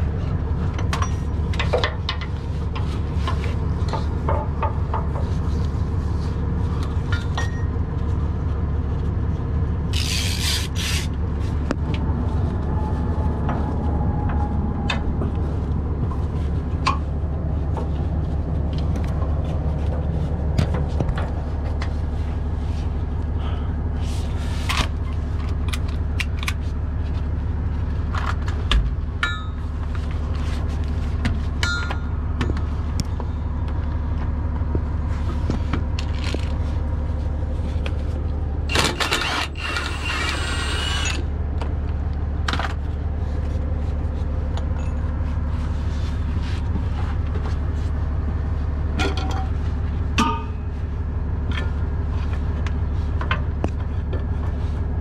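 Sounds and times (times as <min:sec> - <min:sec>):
diesel truck engine idling: 0:00.0 - 0:38.8.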